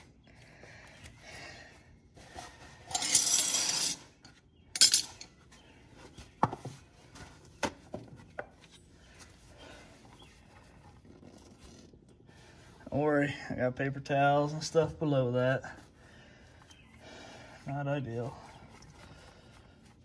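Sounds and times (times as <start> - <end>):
metallic clinks: 4.7 - 5.3.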